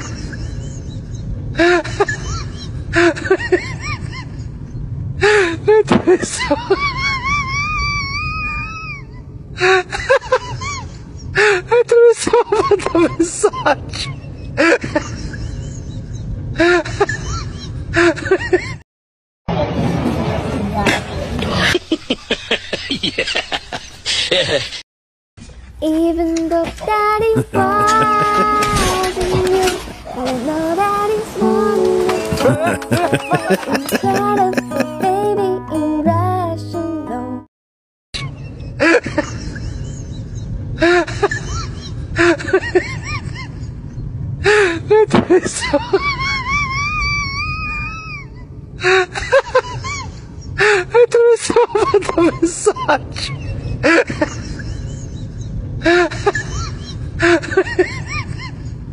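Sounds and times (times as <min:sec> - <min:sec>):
low background rumble: 0:00.0 - 0:18.8, 0:38.3 - 0:58.9
street noise: 0:25.4 - 0:35.8
hissy background: 0:26.3 - 0:35.6.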